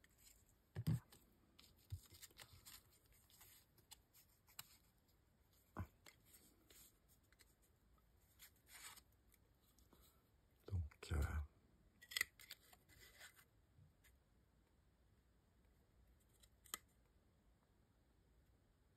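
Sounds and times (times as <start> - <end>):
faint paper rustling: 0.0 - 10.2, 12.1 - 14.2.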